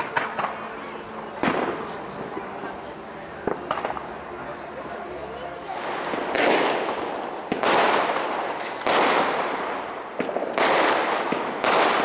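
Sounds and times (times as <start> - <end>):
smaller firework pops: 3.4 - 4.0, 5.8 - 12.0
firework shells bursting: 5.8 - 12.0.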